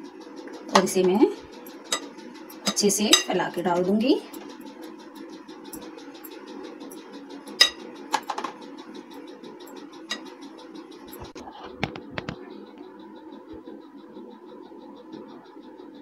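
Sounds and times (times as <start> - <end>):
steady low hum: 0.0 - 16.0
spoon clinking against glass bowl: 7.6 - 7.8.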